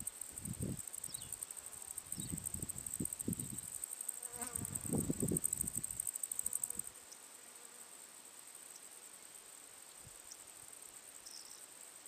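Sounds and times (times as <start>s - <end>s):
pulsing insect buzz: 0.3s - 6.9s.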